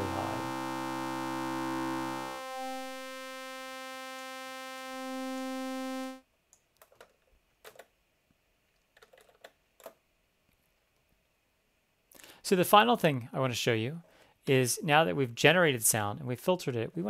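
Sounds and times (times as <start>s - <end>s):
resonant synthesizer tone: 0.0s - 6.2s.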